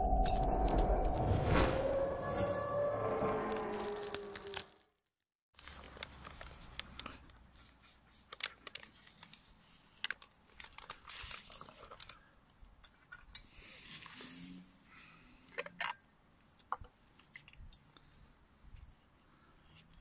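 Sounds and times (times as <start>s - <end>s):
potato flakes poured into pot: 3.2s - 4.8s
paper bag crinkling: 3.2s - 4.9s.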